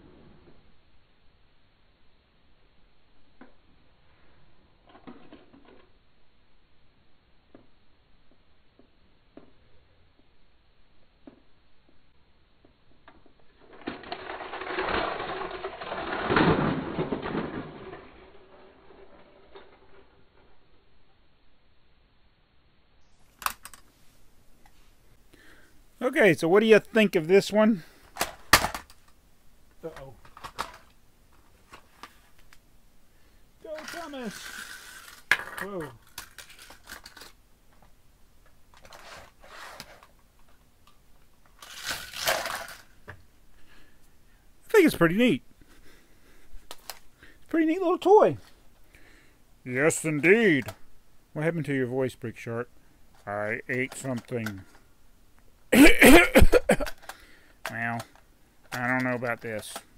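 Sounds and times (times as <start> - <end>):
toy train rattling on plastic track: 13.1 - 20.5, 33.6 - 37.4, 38.7 - 40.1, 41.5 - 43.0, 53.2 - 54.8, 56.8 - 59.9.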